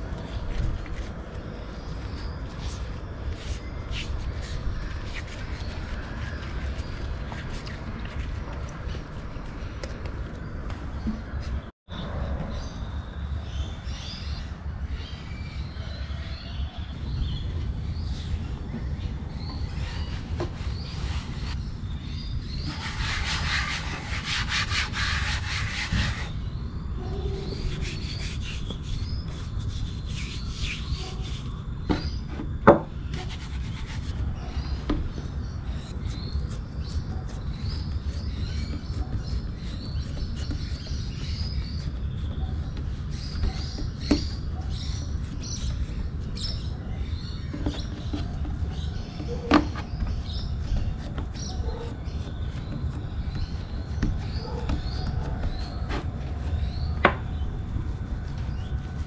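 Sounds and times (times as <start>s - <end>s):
palm rubbing wooden board: 19.5s - 21.6s, 22.6s - 26.4s, 27.4s - 32.5s, 33.1s - 46.6s.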